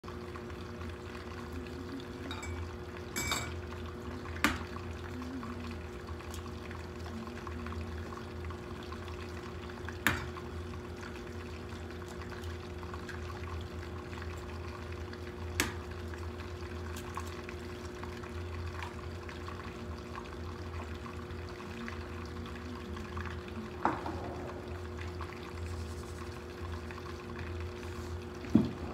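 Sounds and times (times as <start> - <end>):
kitchen low hum: 0.0 - 28.9
dishes clinking: 2.3 - 3.6.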